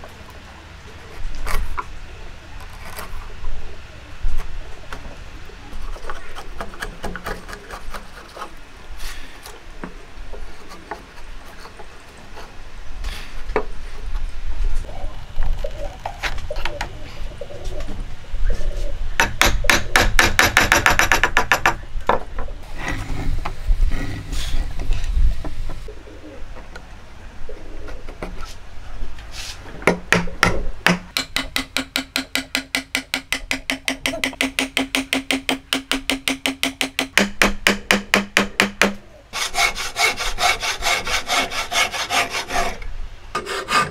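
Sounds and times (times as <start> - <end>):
hands brushing wood chips: 29.2 - 29.7
wooden mallet tapping wood: 29.9 - 39.0
chisel scraping wood: 39.4 - 42.8, 43.4 - 43.9.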